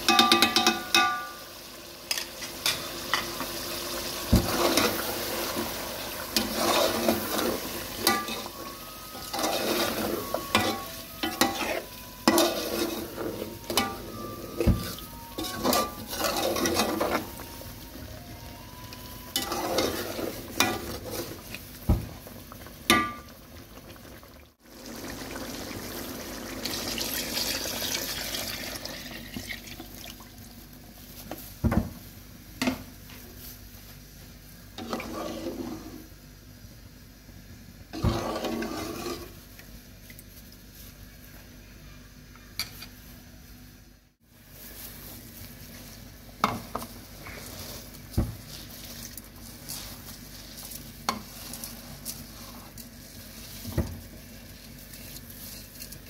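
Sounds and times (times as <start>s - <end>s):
spoon knocking against pot: 0.0s - 1.3s
spoon stirring and scraping pot: 0.0s - 1.3s, 4.3s - 17.9s, 18.7s - 22.0s, 34.8s - 36.1s, 37.9s - 39.7s, 44.7s - 56.0s
food sizzling: 0.0s - 32.5s, 44.3s - 56.0s.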